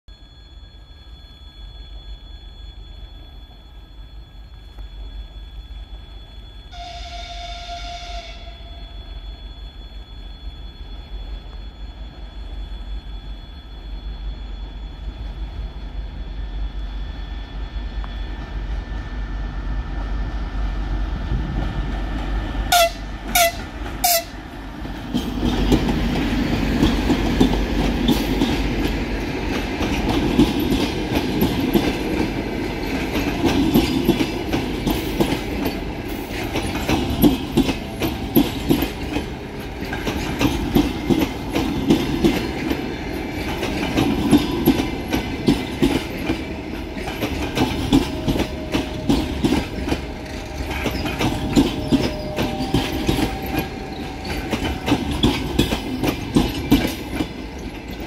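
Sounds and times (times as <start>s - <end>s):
train passing in a rush: 0.1s - 58.0s
locomotive horn blasts: 6.7s - 8.9s, 22.7s - 24.4s, 48.2s - 55.0s
diesel locomotive rumble: 15.1s - 58.0s
wheels clattering over rail joints: 24.9s - 58.0s.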